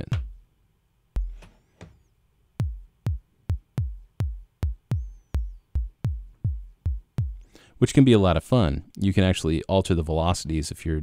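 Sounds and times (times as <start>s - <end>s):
synthesized kick drum: 0.0s - 0.4s, 1.2s - 1.6s, 2.6s - 7.5s.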